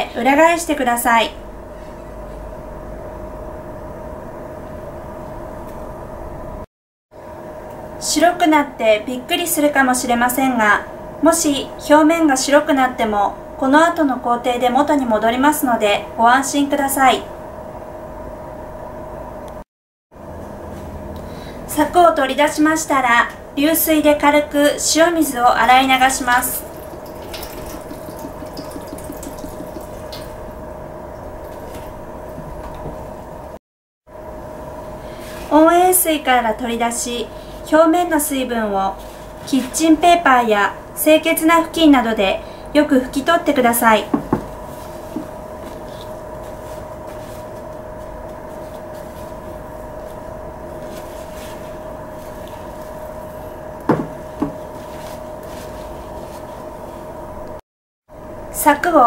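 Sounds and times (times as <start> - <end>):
steady background hum: 0.0 - 19.6, 20.2 - 59.0
tap water splashing into bowl: 26.3 - 30.4
knocks on ceramic plate: 53.9 - 54.6.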